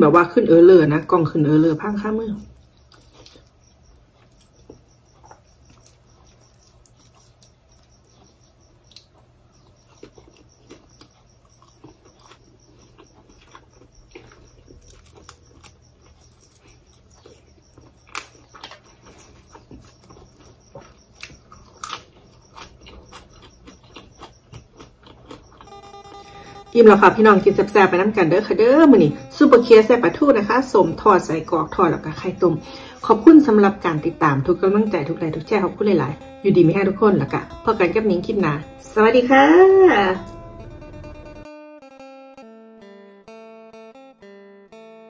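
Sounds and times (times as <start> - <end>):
close chewing clicks: 2.4 - 26.2.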